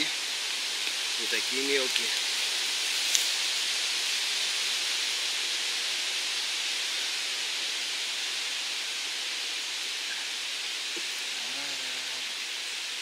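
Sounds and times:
trees rustling in wind: 0.0s - 13.0s.

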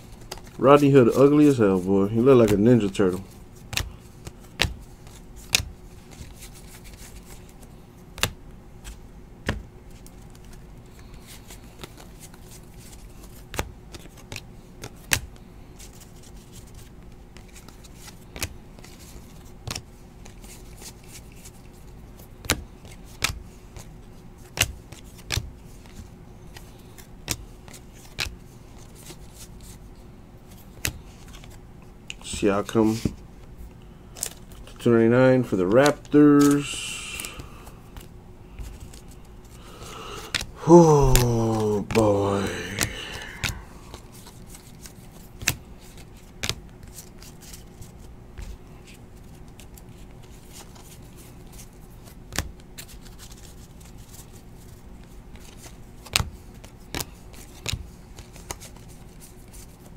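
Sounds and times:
faint steady hum: 0.0s - 59.9s
cards flicking: 39.8s - 47.6s.

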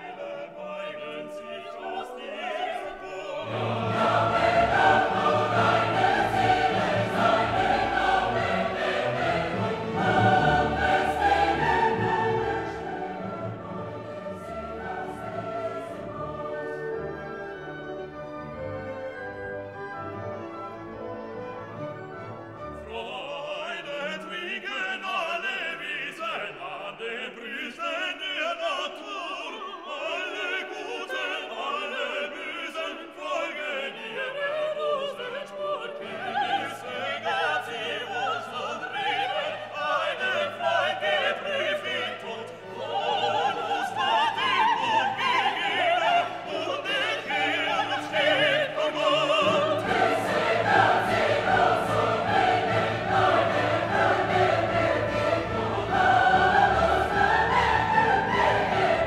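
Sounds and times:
operatic singing: 0.0s - 18.3s, 22.7s - 59.0s
orchestral music: 0.0s - 59.0s.

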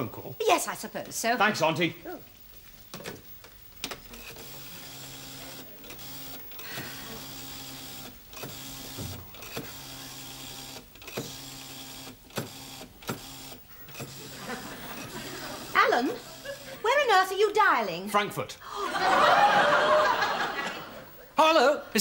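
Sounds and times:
rotary dial whirring: 2.2s - 16.8s.

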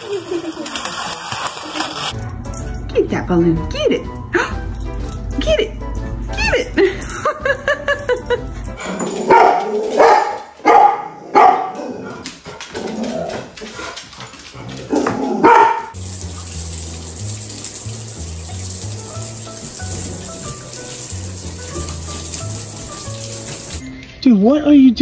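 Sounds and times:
water splashing in bathtub: 0.0s - 2.2s, 12.3s - 23.8s
dog barking: 9.3s - 12.2s, 15.0s - 16.0s.

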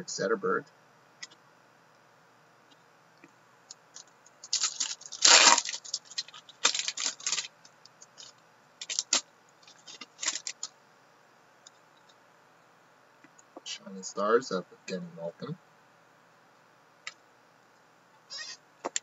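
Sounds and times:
foil wrapper tearing and crinkling: 4.4s - 7.5s, 8.2s - 10.7s.

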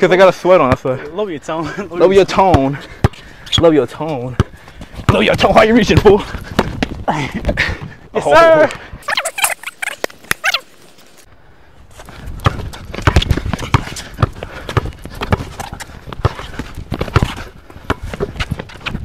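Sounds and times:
basketball bouncing on hard court: 2.3s - 7.0s, 12.4s - 19.0s
sneaker steps: 2.4s - 7.1s, 11.9s - 19.0s.

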